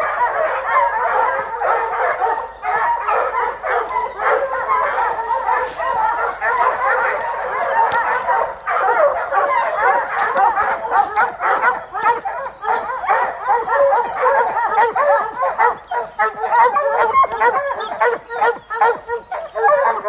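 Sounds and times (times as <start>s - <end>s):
hounds barking and bawling: 0.0s - 20.0s.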